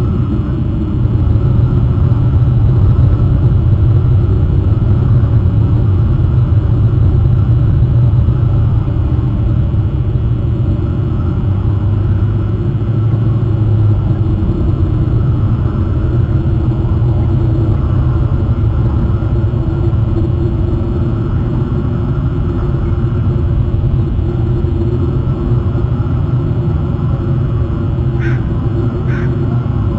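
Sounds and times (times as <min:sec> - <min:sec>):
loud low rumble: 0:00.0 - 0:29.9
low hum: 0:00.0 - 0:29.9.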